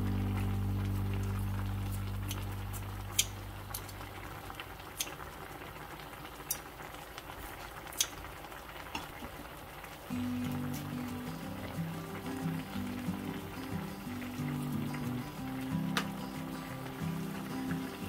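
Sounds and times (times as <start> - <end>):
background music: 0.0 - 3.8, 10.1 - 18.0
stew simmering and bubbling: 0.0 - 18.0.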